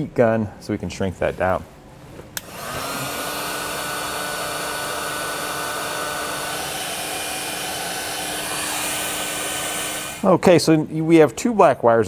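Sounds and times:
heat gun blowing: 0:02.4 - 0:10.4.

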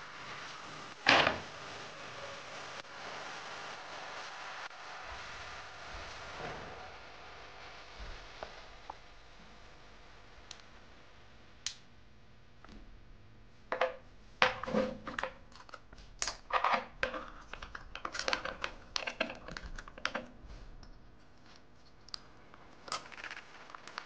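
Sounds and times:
small hard parts clicking and clattering: 0:13.7 - 0:21.0, 0:22.8 - 0:24.0.

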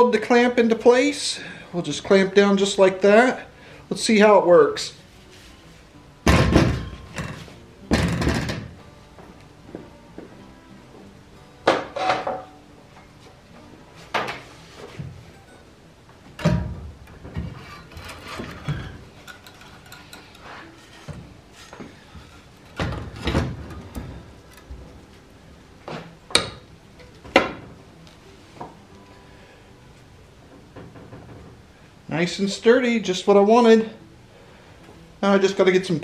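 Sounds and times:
metal clunks and knocks: 0:06.3 - 0:08.8, 0:11.7 - 0:12.5, 0:16.4 - 0:20.0, 0:22.6 - 0:24.7, 0:30.5 - 0:31.6.

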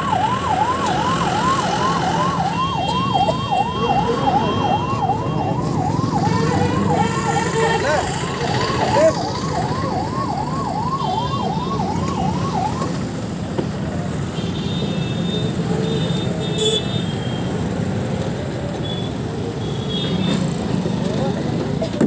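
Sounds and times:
ambulance siren: 0:00.0 - 0:14.4
street noise: 0:00.0 - 0:22.0.

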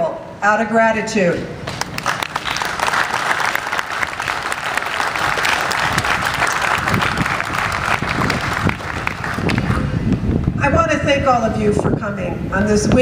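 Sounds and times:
audience applauding: 0:01.7 - 0:10.1.

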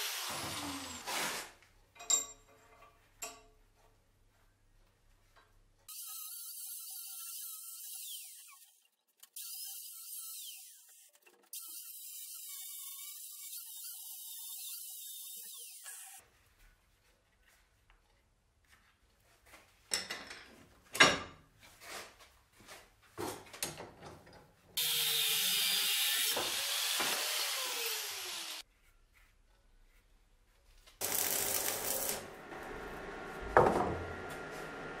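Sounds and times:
angle grinder cutting steel: 0:00.0 - 0:01.1, 0:05.9 - 0:08.8, 0:09.4 - 0:16.2, 0:24.8 - 0:28.6, 0:31.0 - 0:33.2
arc welding crackle: 0:31.0 - 0:32.4.

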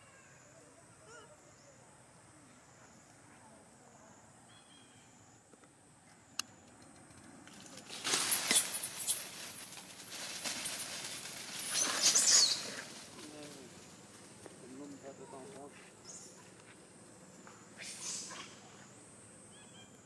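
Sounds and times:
dry leaves rustling and crackling: 0:07.5 - 0:15.7.

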